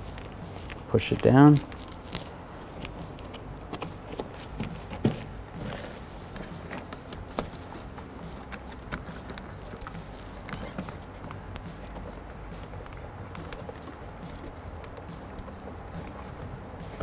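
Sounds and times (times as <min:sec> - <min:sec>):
gloved hands tapping and patting: 0:00.0 - 0:17.0.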